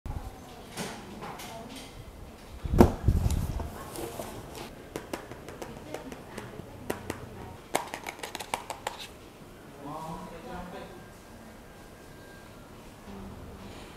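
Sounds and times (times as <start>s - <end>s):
laptop dull thump: 2.8s - 3.1s.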